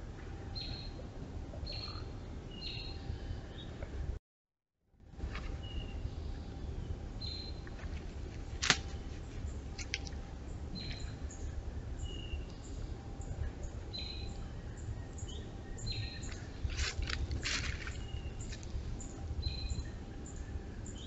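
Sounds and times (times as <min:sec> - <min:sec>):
steady low hiss: 0:05.0 - 0:21.0.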